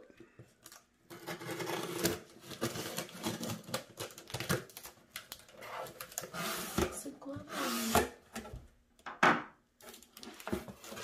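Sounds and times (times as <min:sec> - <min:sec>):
knife slicing packing tape: 0:01.1 - 0:03.8.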